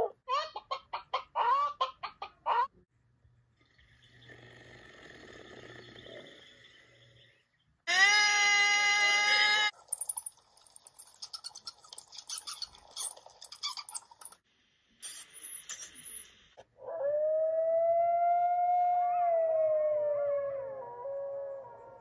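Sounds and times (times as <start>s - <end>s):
steady pitched animal call: 7.9s - 9.7s
high chirps squeaks and clicks: 7.9s - 14.4s, 15.0s - 16.4s
long canine howl: 16.8s - 22.0s.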